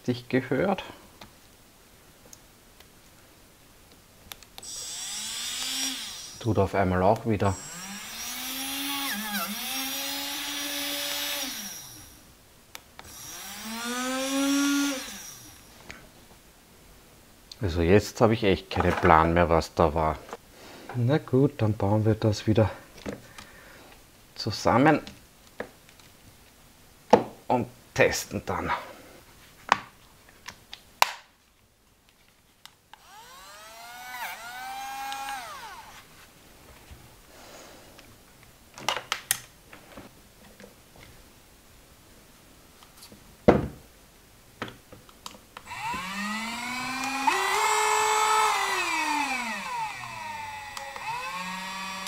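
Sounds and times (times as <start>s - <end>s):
small motor whining: 4.6s - 6.4s, 7.5s - 12.2s, 13.0s - 15.7s, 33.0s - 36.1s, 45.6s - 52.0s
sharp plastic clicks: 46.9s - 52.0s.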